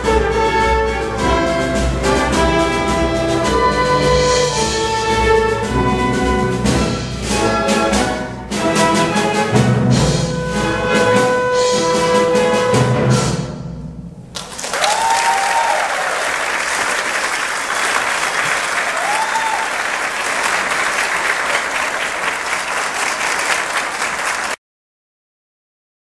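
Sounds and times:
audience applauding: 0:14.3 - 0:24.6.

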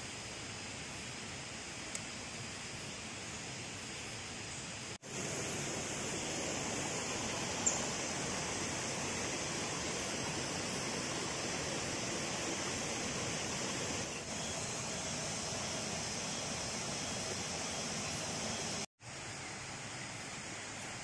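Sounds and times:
high-pitched hiss: 0:00.0 - 0:21.0
water running over rocks: 0:05.0 - 0:18.9.

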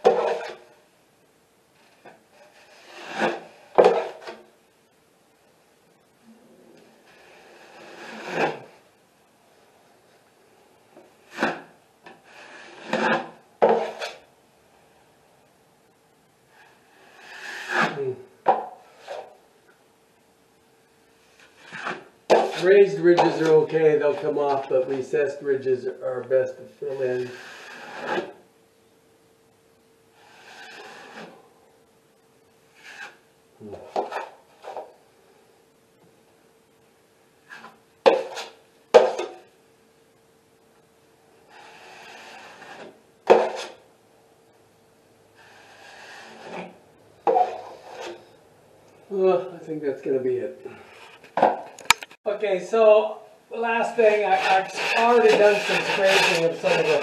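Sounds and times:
taping knife scraping compound: 0:00.0 - 0:00.7, 0:01.8 - 0:04.5, 0:07.0 - 0:08.8, 0:11.2 - 0:14.3, 0:16.5 - 0:18.2, 0:21.4 - 0:24.6, 0:26.8 - 0:28.4, 0:30.2 - 0:31.4, 0:32.7 - 0:34.9, 0:37.4 - 0:39.4, 0:41.5 - 0:43.8, 0:45.4 - 0:48.4, 0:53.7 - 0:57.0.

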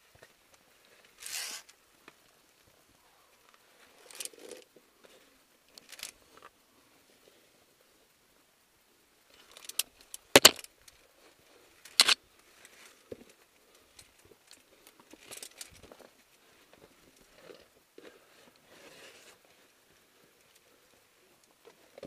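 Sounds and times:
climbing gear clinking: 0:09.4 - 0:10.7, 0:11.9 - 0:12.2, 0:14.0 - 0:16.1.

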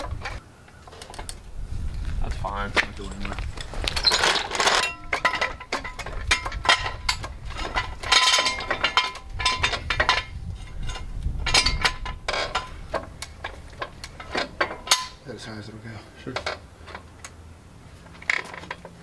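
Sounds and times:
floor jack clicking and clanking: 0:02.8 - 0:15.2.

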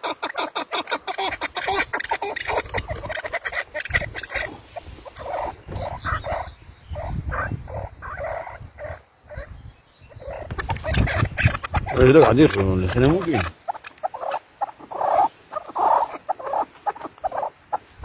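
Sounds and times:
partridges clucking: 0:00.0 - 0:06.5, 0:10.2 - 0:17.8.

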